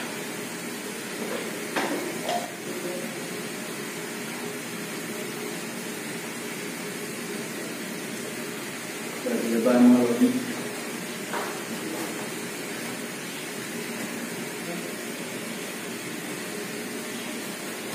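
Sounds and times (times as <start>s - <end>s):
room noise hiss: 0.0s - 17.9s.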